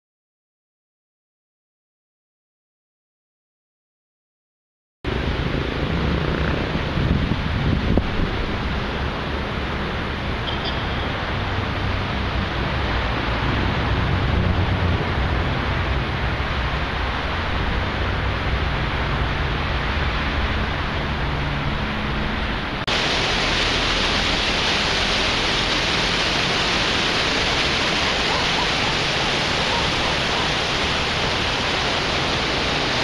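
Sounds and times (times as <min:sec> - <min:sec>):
wind on microphone: 0:05.1 - 0:09.8, 0:12.3 - 0:23.1
sea surf rushing: 0:05.1 - 0:33.0
waves washing below pier: 0:05.1 - 0:33.0.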